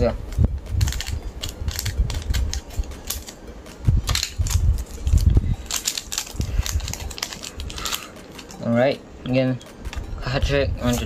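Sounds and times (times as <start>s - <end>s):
scissors cutting foil: 0.6s - 8.7s
foil wrapper crinkling: 4.0s - 8.6s.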